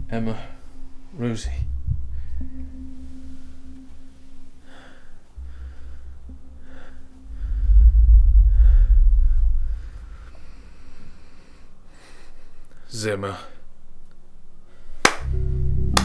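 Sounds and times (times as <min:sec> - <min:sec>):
deep low rumbling drone: 0:00.0 - 0:11.2
faint steady hum: 0:00.0 - 0:16.0
person breathing heavily: 0:04.5 - 0:12.9.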